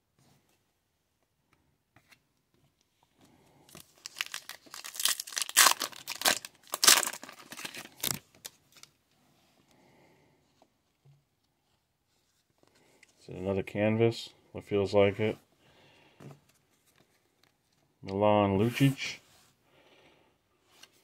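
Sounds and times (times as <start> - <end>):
wrapper tearing and crinkling: 3.8 - 8.9.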